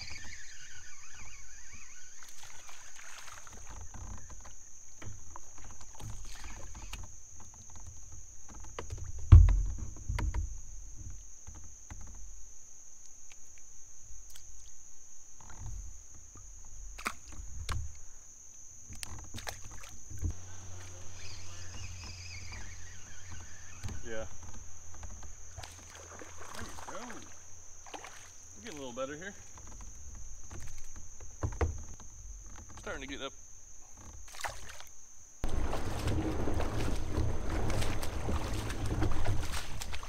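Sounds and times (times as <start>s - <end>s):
knocks and rumbles through kayak: 2.5s - 12.4s, 18.8s - 34.4s, 35.4s - 40.0s.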